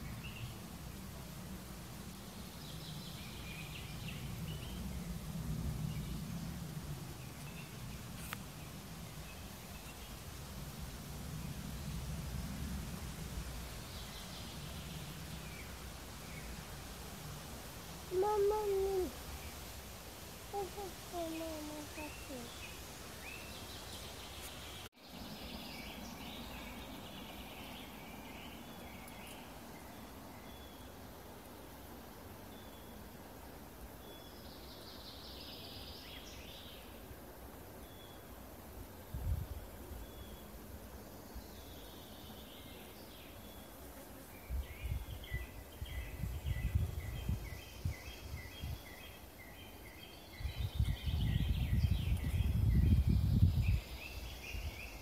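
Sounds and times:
distant birds singing: 0:00.0 - 0:55.0
steady background hiss: 0:00.0 - 0:55.0
birds singing: 0:18.1 - 0:19.6, 0:20.5 - 0:31.0, 0:44.4 - 0:55.0.

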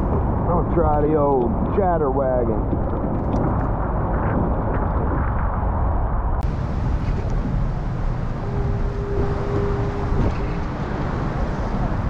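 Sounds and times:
wind buffeting microphone: 0:00.0 - 0:12.0
steady hum: 0:03.5 - 0:12.0.

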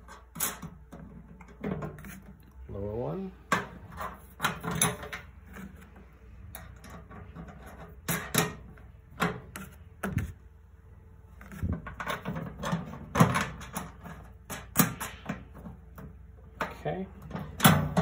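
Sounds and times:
metal parts clicking and knocking: 0:03.5 - 0:05.8, 0:06.4 - 0:09.7, 0:11.6 - 0:18.0.

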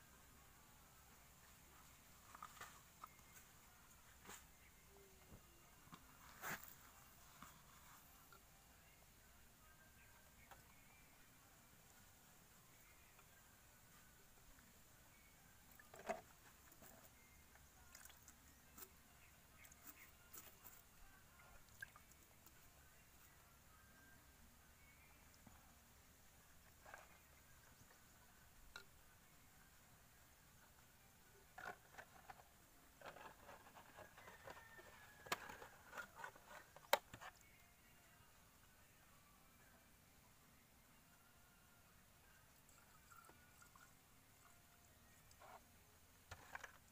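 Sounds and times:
plastic parts clicking and scraping: 0:33.0 - 0:37.3, 0:46.3 - 0:46.9.

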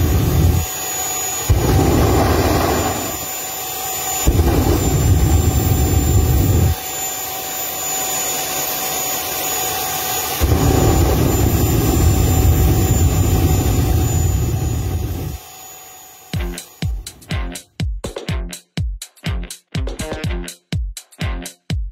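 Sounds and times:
jet engine roaring with whine: 0:00.0 - 0:17.2.

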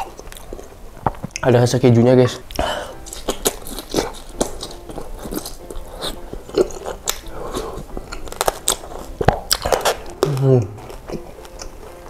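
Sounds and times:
close chewing with wet mouth clicks: 0:03.0 - 0:12.0.

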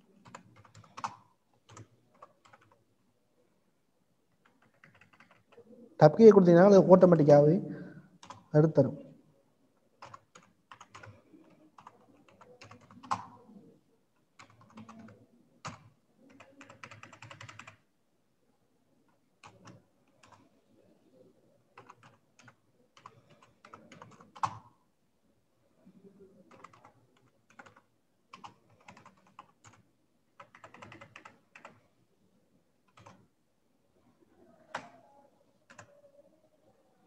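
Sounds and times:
computer keyboard typing: 0:00.1 - 0:02.8, 0:04.3 - 0:05.6, 0:08.2 - 0:08.5, 0:10.0 - 0:13.4, 0:14.2 - 0:17.9, 0:19.1 - 0:20.5, 0:21.8 - 0:24.8, 0:26.5 - 0:31.9, 0:32.8 - 0:33.3, 0:34.6 - 0:35.0, 0:35.6 - 0:36.0.

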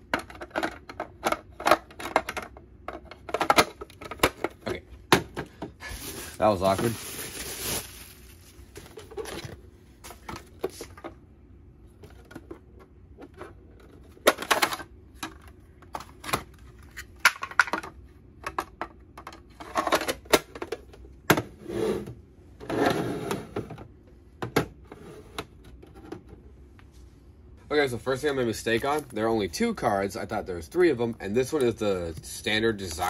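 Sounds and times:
plastic boxes clicking and knocking: 0:00.0 - 0:05.8, 0:12.0 - 0:16.5, 0:17.2 - 0:21.5
cardboard scraping rustles: 0:05.8 - 0:10.8.

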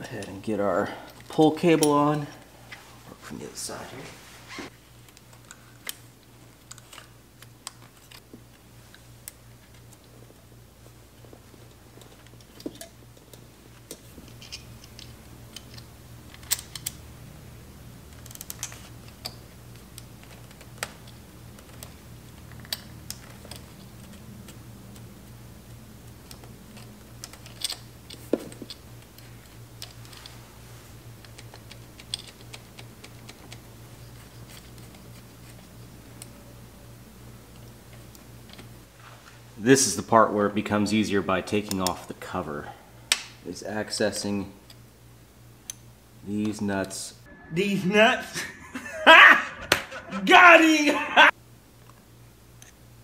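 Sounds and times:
low hum: 0:47.2 - 0:50.3.

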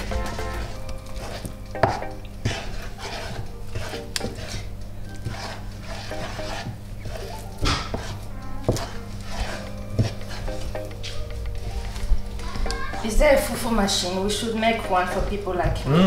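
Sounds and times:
wooden spatula scraping a saucepan: 0:00.0 - 0:12.0.

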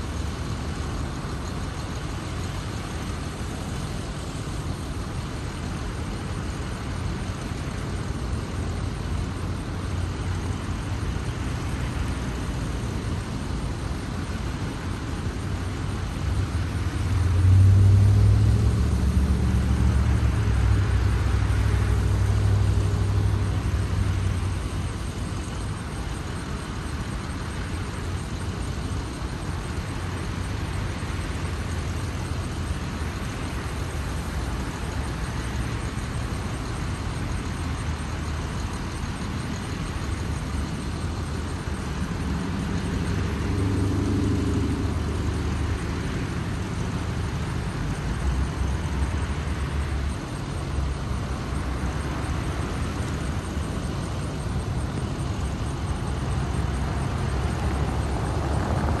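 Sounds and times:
vehicles driving past: 0:15.8 - 0:25.6, 0:39.8 - 0:59.0
vehicle engine passing close: 0:16.7 - 0:24.7, 0:41.7 - 0:47.4, 0:48.2 - 0:59.0.

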